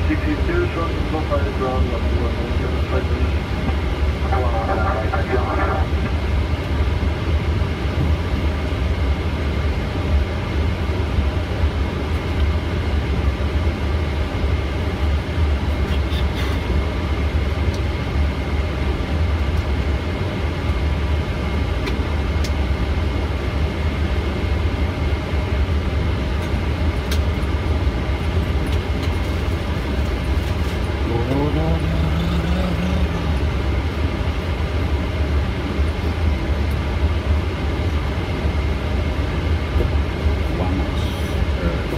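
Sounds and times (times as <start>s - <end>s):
faint high whine: 0.0s - 26.8s
airliner taxiing rumble: 0.0s - 41.9s.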